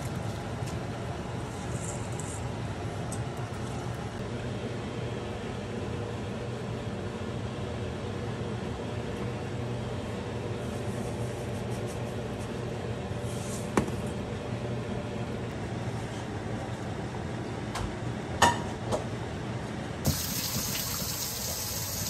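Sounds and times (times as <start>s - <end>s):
running tap water: 20.1s - 22.0s.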